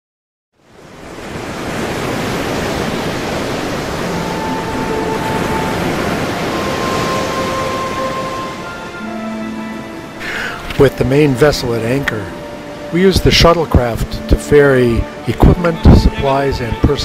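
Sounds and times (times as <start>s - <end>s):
wind: 0.5s - 17.0s
ocean surf roaring: 0.6s - 17.0s
held music notes: 3.7s - 17.0s.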